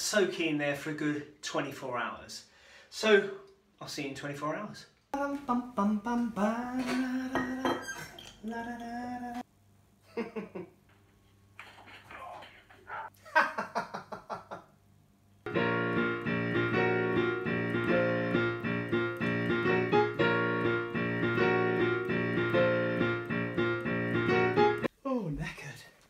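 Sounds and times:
digital piano notes and chords: 0:15.5 - 0:24.9.

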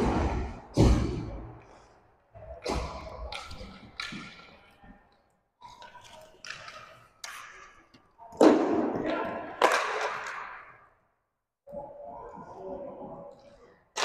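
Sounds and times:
hockey sticks and puck knocking: 0:02.7 - 0:04.8, 0:05.7 - 0:10.8.

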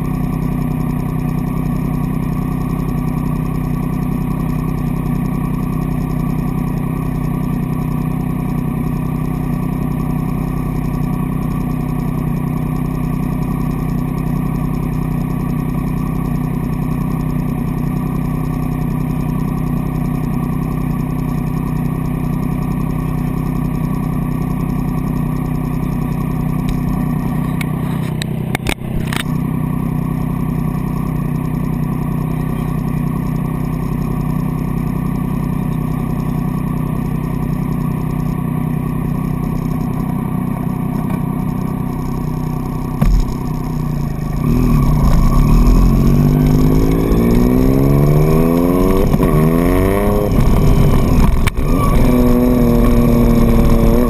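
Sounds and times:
motorcycle engine idling: 0:00.0 - 0:54.0
motorcycle revving and pulling away: 0:00.0 - 0:54.0
thump: 0:43.0 - 0:43.4.

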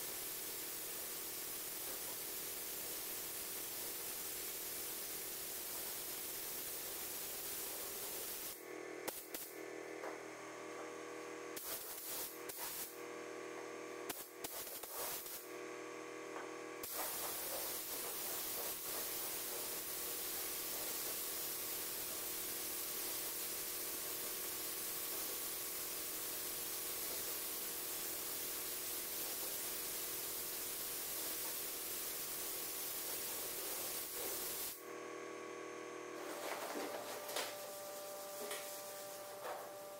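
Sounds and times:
paint spray gun hissing: 0:00.0 - 0:09.6, 0:11.6 - 0:13.0, 0:14.1 - 0:15.4, 0:16.8 - 0:34.8, 0:36.2 - 0:39.9
steady hum: 0:26.2 - 0:39.9.

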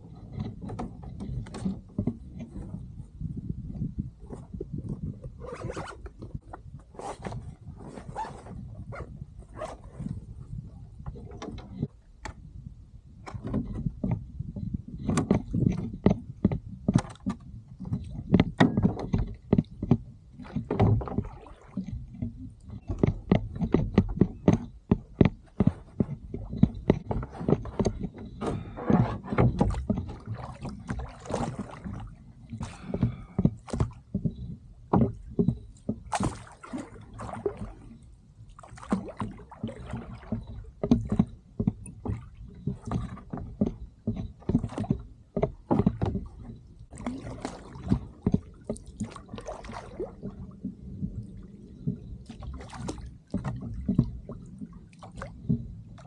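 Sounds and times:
oars knocking in oarlocks: 0:00.0 - 0:10.3, 0:13.2 - 0:56.0
water sloshing: 0:13.3 - 0:56.0.

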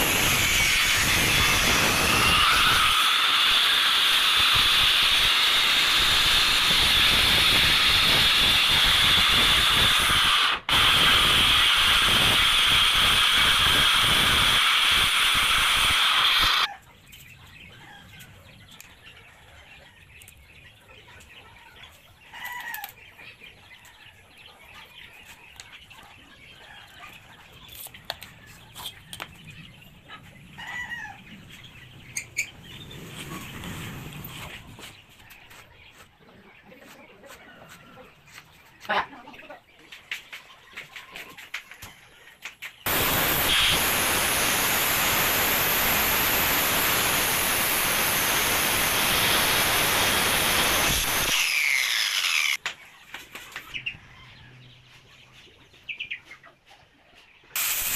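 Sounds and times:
circular saw cutting plywood: 0:00.0 - 0:16.7, 0:42.8 - 0:52.6.

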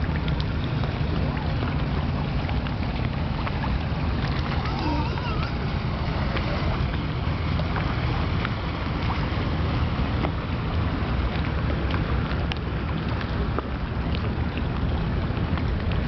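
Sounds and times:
little splashes in water: 0:00.0 - 0:09.2
small waves lapping: 0:00.0 - 0:16.0
wind rumbling on microphone: 0:00.0 - 0:16.0.

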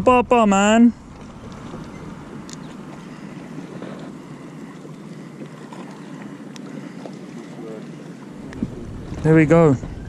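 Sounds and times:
water lapping: 0:00.0 - 0:10.0
wind noise on microphone: 0:08.5 - 0:10.0.

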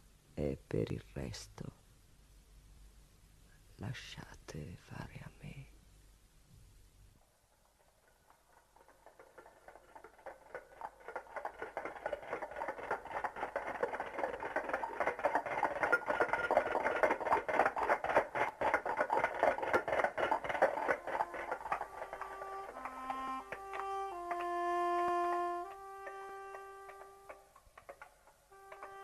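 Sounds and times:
clatter of small knocks: 0:07.6 - 0:24.6, 0:25.7 - 0:29.0.

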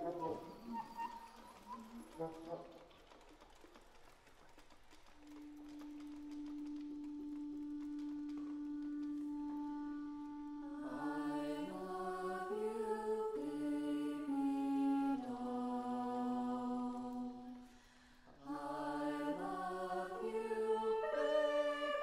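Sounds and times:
woodwind quintet sustained chords: 0:05.2 - 0:17.5, 0:18.5 - 0:22.0.

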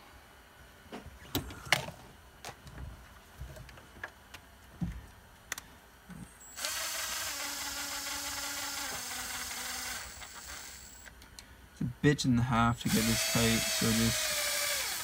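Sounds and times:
cordless drill running: 0:06.4 - 0:11.1, 0:12.9 - 0:15.0.

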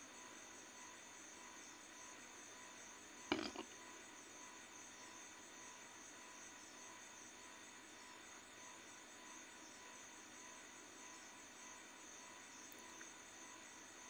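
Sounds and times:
small knocks: 0:03.3 - 0:03.7.

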